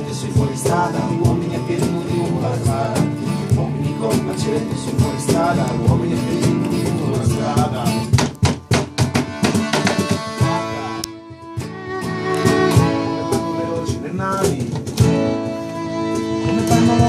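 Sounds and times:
strummed acoustic guitars: 0:00.0 - 0:17.0
button accordion: 0:08.8 - 0:17.0.

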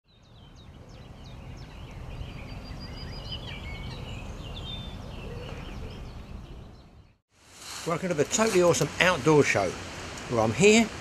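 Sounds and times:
small birds chirping and trilling: 0:00.1 - 0:07.2.

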